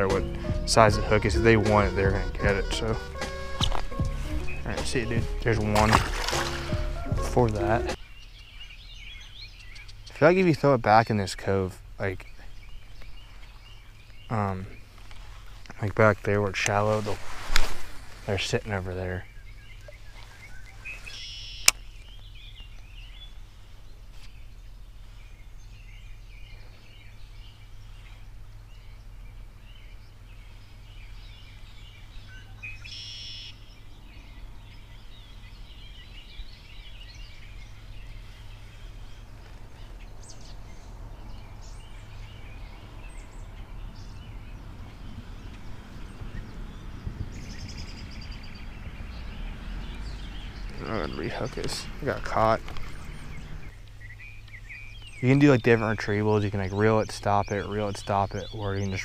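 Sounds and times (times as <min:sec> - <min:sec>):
birds chirping and calling: 0:00.0 - 0:59.0
low background rumble: 0:33.6 - 0:56.8.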